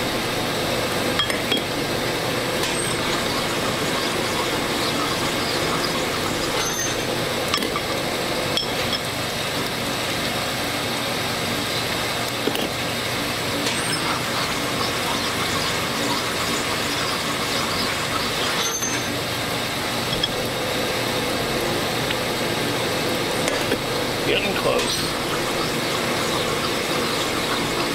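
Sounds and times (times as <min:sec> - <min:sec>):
honing machine running: 0:01.2 - 0:09.0, 0:13.6 - 0:19.2.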